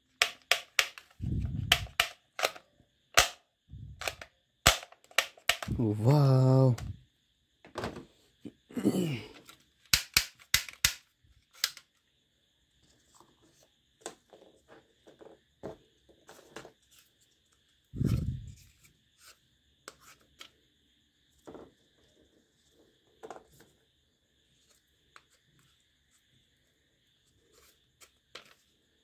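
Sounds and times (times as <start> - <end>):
toy gun plastic clicks: 0.2 - 2.6, 3.2 - 3.4, 4.0 - 5.7, 9.9 - 11.9.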